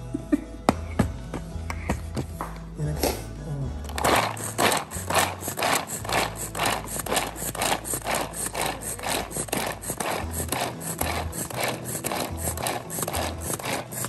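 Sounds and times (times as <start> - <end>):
blades chopping vegetables: 3.9 - 14.0
pull-cord food chopper: 3.9 - 14.0.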